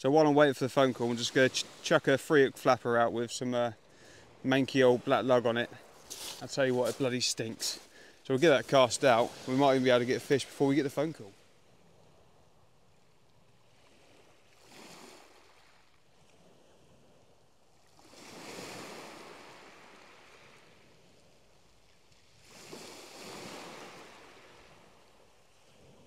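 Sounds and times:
waves breaking on shingle: 0:05.6 - 0:10.8.

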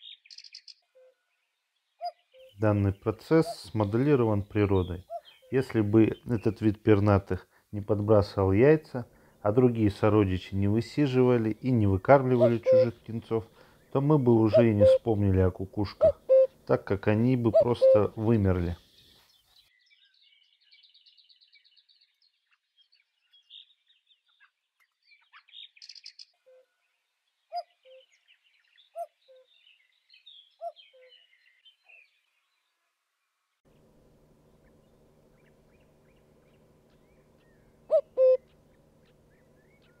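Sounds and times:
small birds chirping: 0:00.0 - 0:40.0
cuckoo calling: 0:00.9 - 0:01.2, 0:02.0 - 0:07.2, 0:09.5 - 0:18.8, 0:34.6 - 0:40.0
steady low hum: 0:02.6 - 0:18.8, 0:33.7 - 0:40.0.

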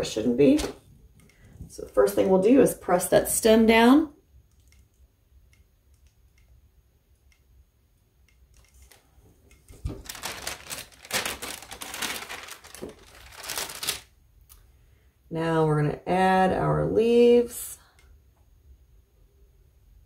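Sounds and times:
parchment paper rustling: 0:00.1 - 0:00.9, 0:08.6 - 0:14.1.

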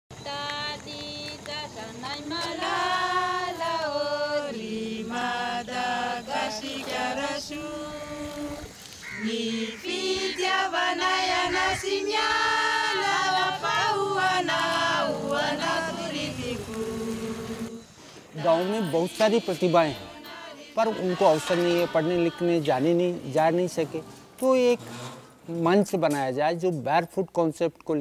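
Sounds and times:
choir singing held notes: 0:00.2 - 0:25.6.

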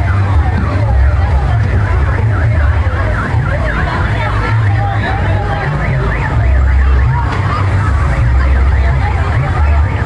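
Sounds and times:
electronic siren-like warbles: 0:00.0 - 0:10.0.

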